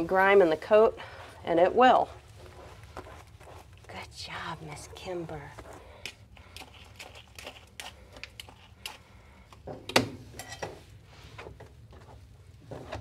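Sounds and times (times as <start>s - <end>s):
brush strokes through wet fur: 0.0s - 6.0s.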